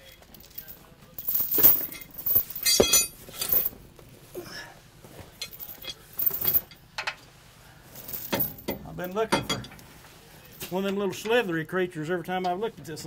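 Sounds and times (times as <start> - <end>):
metal chain clinking: 0.4 - 3.8, 5.4 - 6.7, 8.0 - 9.6.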